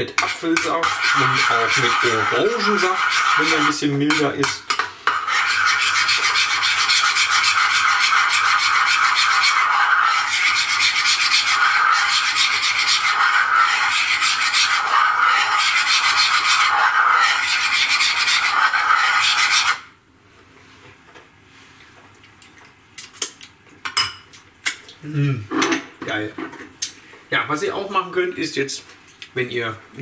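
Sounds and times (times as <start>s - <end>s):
metal whisk scraping a pot: 0.0s - 19.8s.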